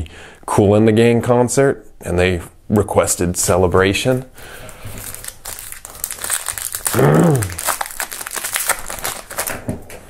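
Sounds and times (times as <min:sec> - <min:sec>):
plastic wrapper crinkling: 0:04.1 - 0:10.0
short vocal sound: 0:06.9 - 0:07.6.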